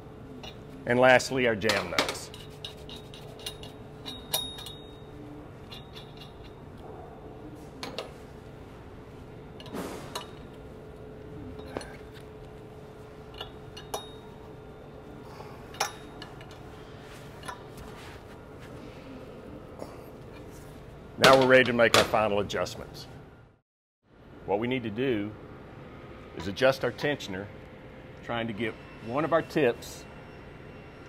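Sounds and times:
faint steady hum: 0.0s - 31.0s
wrench clinking on metal nuts: 1.6s - 6.6s, 13.3s - 14.4s.

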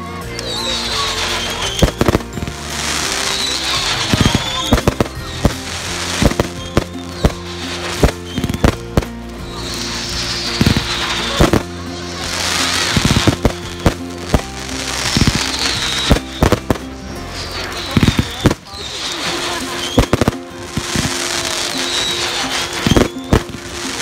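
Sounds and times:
music with sustained notes: 0.0s - 24.0s
crackling firework sparks: 0.2s - 24.0s
fireworks bangs: 0.4s - 24.0s.

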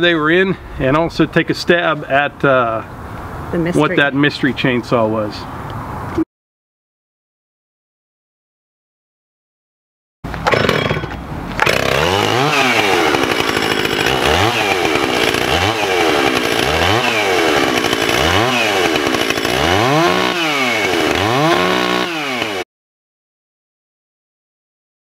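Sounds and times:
chainsaw engine revving: 10.3s - 22.7s.

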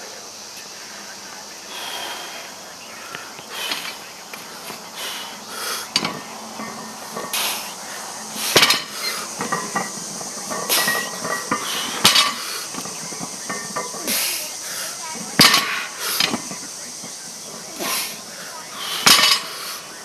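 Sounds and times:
hard breathing: 0.9s - 20.0s
barbell plates clanking: 3.6s - 20.0s.

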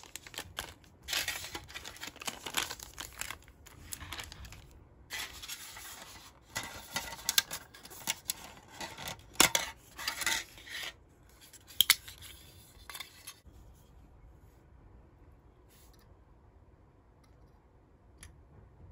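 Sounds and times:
plastic tray and spoon scraping: 5.1s - 11.0s.

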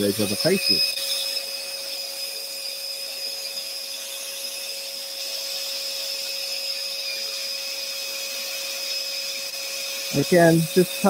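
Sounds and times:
scroll saw whining: 0.0s - 11.0s.

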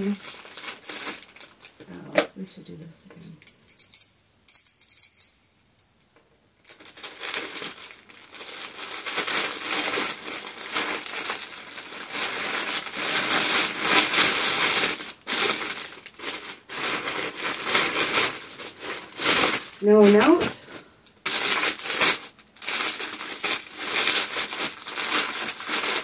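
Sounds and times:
plastic bag crinkling: 0.0s - 1.8s, 6.6s - 26.0s
thin high tone: 3.5s - 6.2s.

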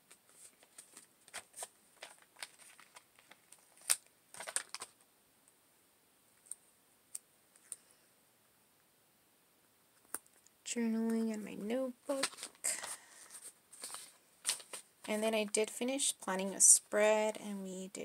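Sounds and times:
paper crackling: 0.1s - 5.0s, 12.0s - 16.7s.

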